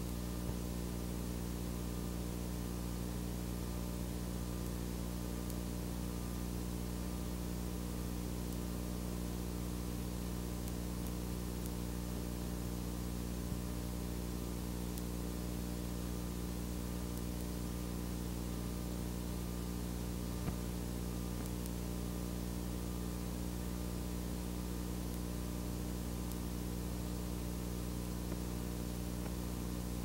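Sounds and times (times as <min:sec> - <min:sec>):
electrical hum with hiss: 0:00.0 - 0:30.0.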